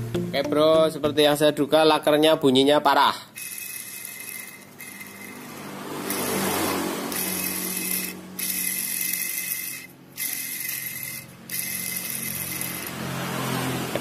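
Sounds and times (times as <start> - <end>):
worn bearing grinding rattle: 3.3 - 13.4.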